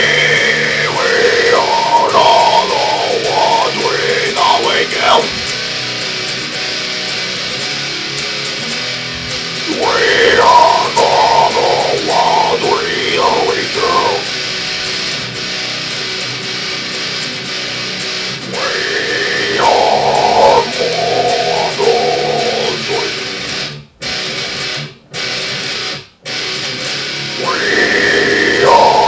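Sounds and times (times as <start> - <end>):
growled metal vocals: 0.0 - 5.7, 9.2 - 15.0, 18.4 - 23.6, 27.4 - 29.0
electric guitar riff: 0.0 - 29.0.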